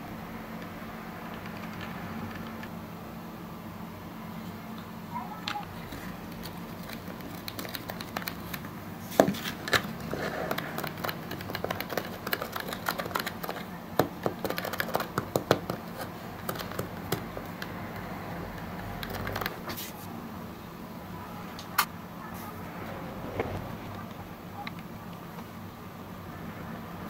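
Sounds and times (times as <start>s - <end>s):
plastic toy clicks and taps: 10.5s - 19.6s.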